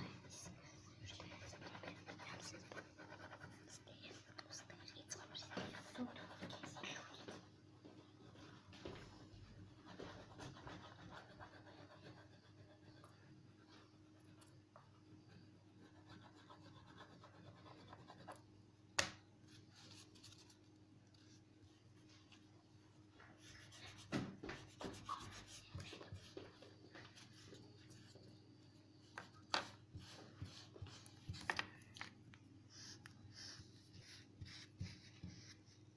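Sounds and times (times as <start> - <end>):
oil pastel scratching on paper: 0.0 - 7.4, 9.7 - 14.3, 23.4 - 28.2, 32.7 - 35.9.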